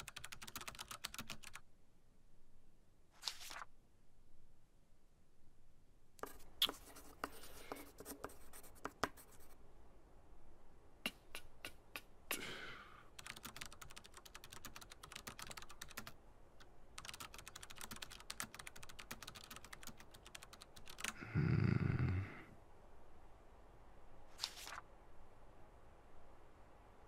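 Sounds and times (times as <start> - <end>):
typing on keyboard: 0.0 - 1.6, 13.2 - 16.2, 17.0 - 21.2.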